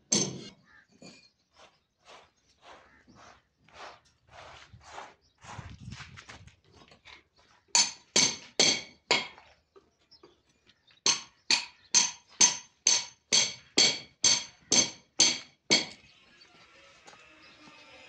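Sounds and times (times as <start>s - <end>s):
hammer striking metal frame: 0.0s - 0.5s, 7.8s - 9.4s, 11.1s - 16.0s.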